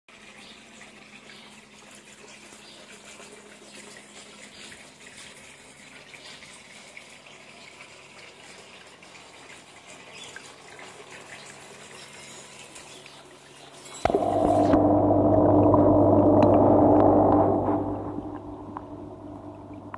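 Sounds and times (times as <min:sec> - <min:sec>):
faint steady hum: 0:14.1 - 0:19.9
water splashing into water: 0:14.1 - 0:19.9.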